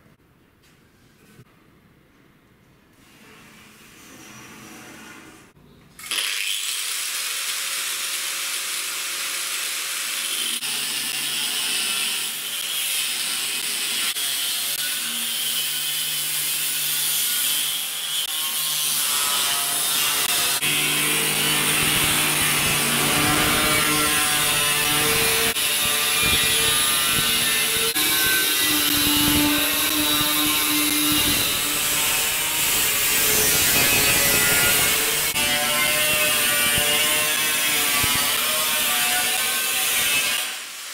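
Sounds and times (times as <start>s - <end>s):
angle grinder cutting steel: 6.0s - 40.9s.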